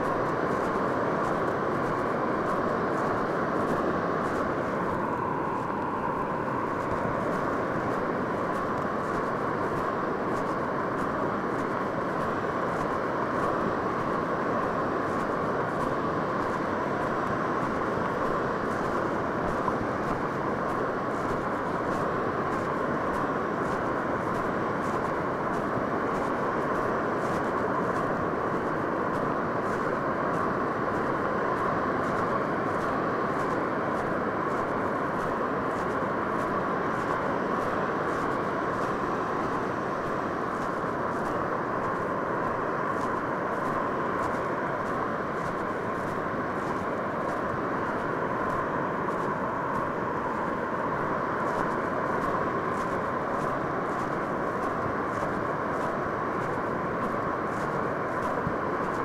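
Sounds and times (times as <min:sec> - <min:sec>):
ocean surf breaking: 0:00.0 - 0:59.0.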